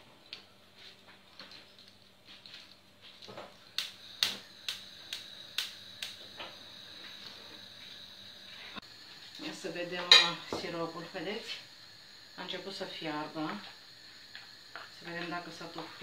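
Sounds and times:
stove spark igniter clicking: 3.4s - 8.2s, 9.3s - 16.0s.

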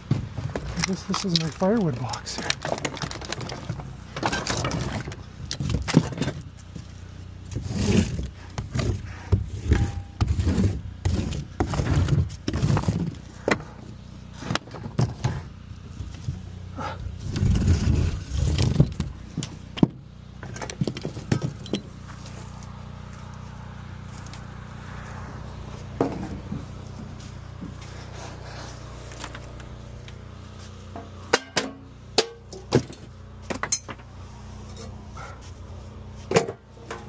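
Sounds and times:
wood pieces clattering into crate: 0.0s - 6.5s.

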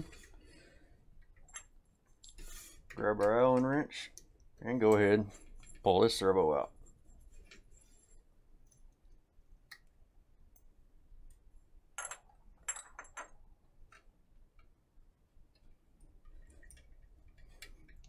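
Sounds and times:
small parts clicking and tapping: 1.1s - 5.9s, 8.6s - 11.4s, 12.0s - 14.8s, 15.4s - 18.0s.

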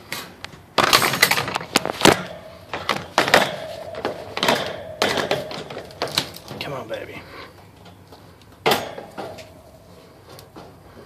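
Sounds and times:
rattling and knocking handling noise: 0.5s - 6.8s, 7.6s - 9.7s
thin steady whine: 1.5s - 11.0s.

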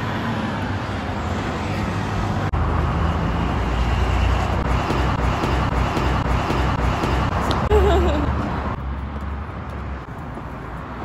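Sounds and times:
hum of passing vehicles: 0.0s - 11.0s.

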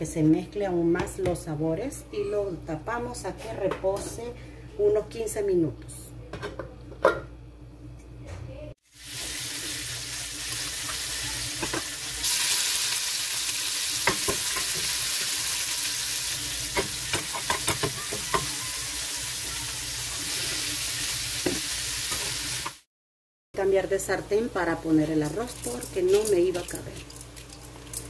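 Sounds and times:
onion sizzling in oil: 8.8s - 22.9s.

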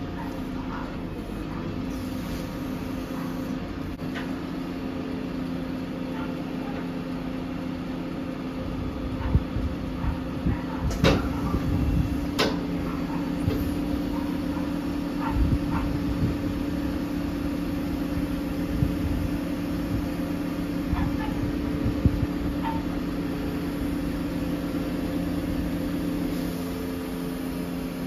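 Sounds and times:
truck diesel engine running: 0.0s - 28.0s.

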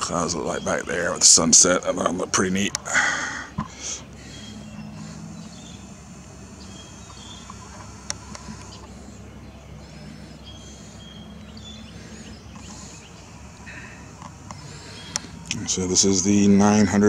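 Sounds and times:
faint chirping calls: 0.0s - 17.0s
steady low hum: 0.0s - 17.0s.

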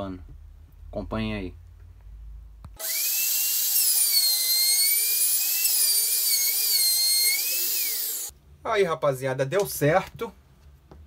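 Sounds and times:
router high whine: 2.8s - 8.3s.

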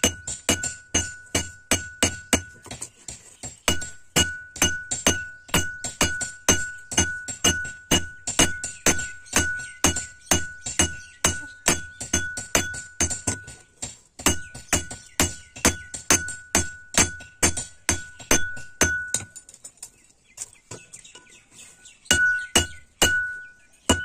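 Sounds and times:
hammer ringing on anvil: 3.7s - 13.4s.

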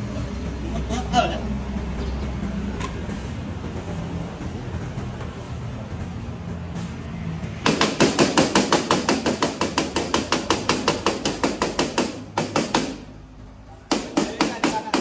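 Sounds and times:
hammer striking steel: 7.6s - 13.1s, 13.9s - 15.0s.

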